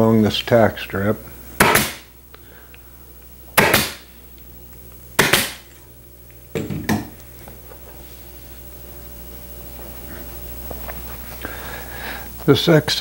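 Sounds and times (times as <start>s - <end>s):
pneumatic staple gun firing: 1.6s - 2.1s, 3.6s - 4.0s, 5.2s - 5.6s.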